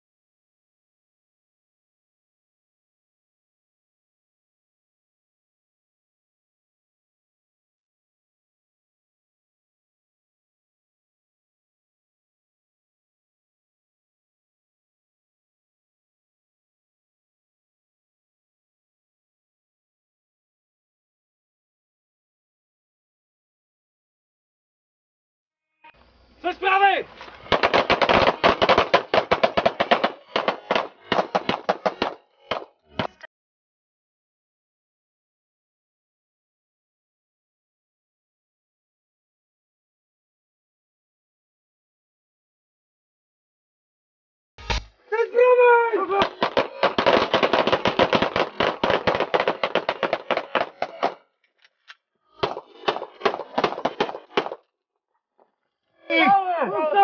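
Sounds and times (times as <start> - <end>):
rapid pistol shots: 27.5 - 33.1, 46.2 - 51.2, 52.4 - 54.6.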